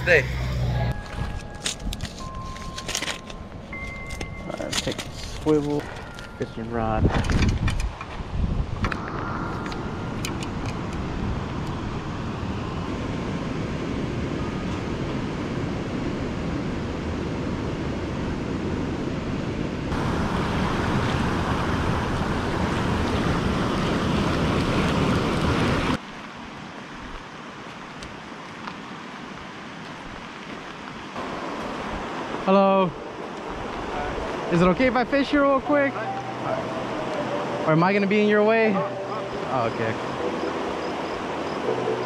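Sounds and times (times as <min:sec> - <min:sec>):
wind on microphone: 0:06.9 - 0:15.9
flowing river water: 0:19.9 - 0:42.0.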